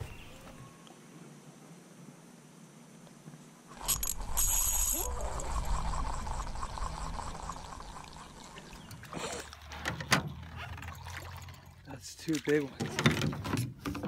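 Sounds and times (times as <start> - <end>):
fishing reel winding: 3.8 - 8.7.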